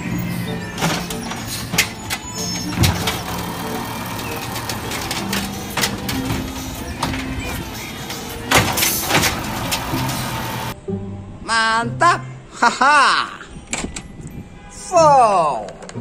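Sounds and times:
garbage truck engine running: 0:00.0 - 0:10.8
hydraulic arm lifting: 0:00.0 - 0:10.8
trash cart knocks and bangs: 0:00.6 - 0:10.7.

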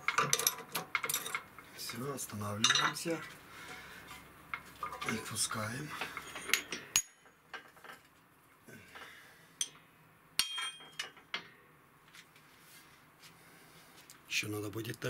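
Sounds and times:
metallic clinks of steel parts: 0:00.0 - 0:02.0, 0:06.0 - 0:08.0, 0:10.4 - 0:11.6.

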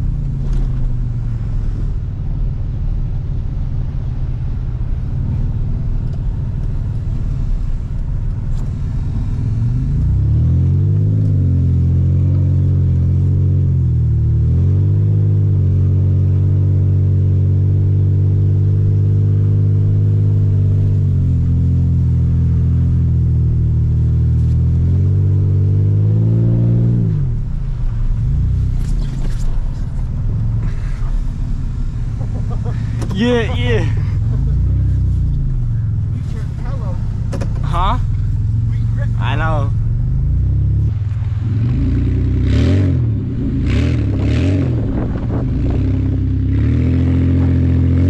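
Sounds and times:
pickup engine revving: 0:05.0 - 0:48.0.

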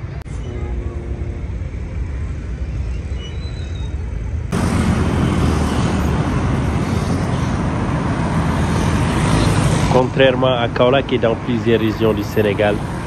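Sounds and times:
cars and motorbikes passing: 0:04.1 - 0:13.0.

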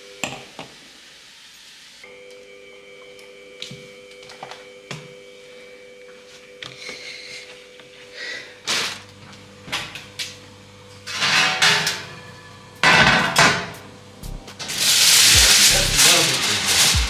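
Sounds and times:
loud rustle: 0:14.7 - 0:17.0.

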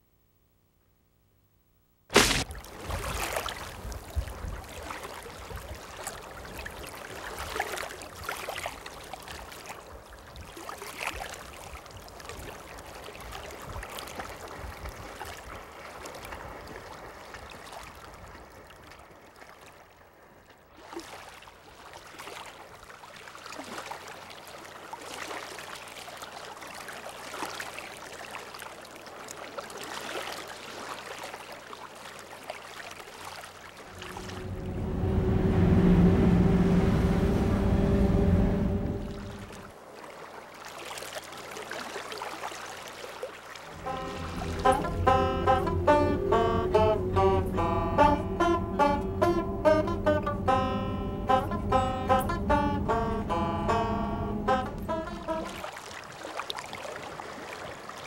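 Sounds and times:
steady rushing noise: 0:33.9 - 0:39.7, 0:43.7 - 0:55.6.

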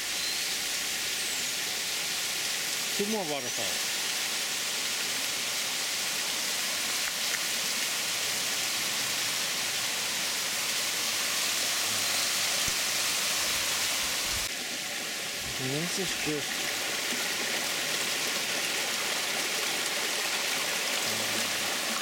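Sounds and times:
water splashing over rocks: 0:06.6 - 0:08.6, 0:10.5 - 0:22.0.

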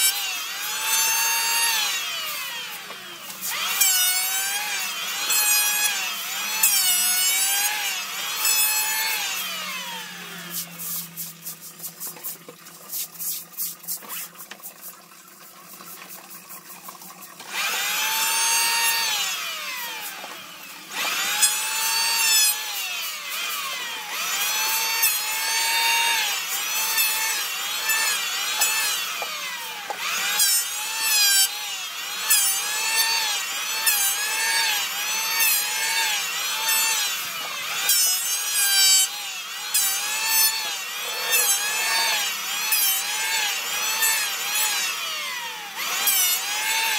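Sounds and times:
electric power tool on wood: 0:00.0 - 0:14.8, 0:15.5 - 0:46.9
hand rubbing wooden board: 0:10.5 - 0:15.0.

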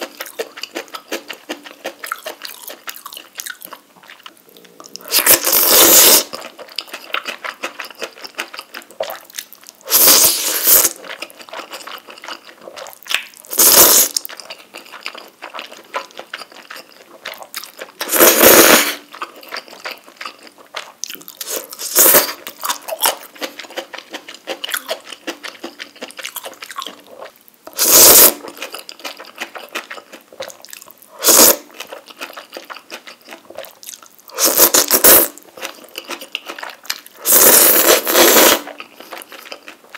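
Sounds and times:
wet chewing: 0:00.0 - 0:39.9
loud slurping of noodles: 0:05.1 - 0:06.4, 0:09.9 - 0:11.0, 0:13.5 - 0:14.2, 0:18.0 - 0:19.0, 0:21.5 - 0:22.4, 0:27.8 - 0:28.4, 0:31.2 - 0:31.6, 0:34.4 - 0:35.4, 0:37.2 - 0:38.7.

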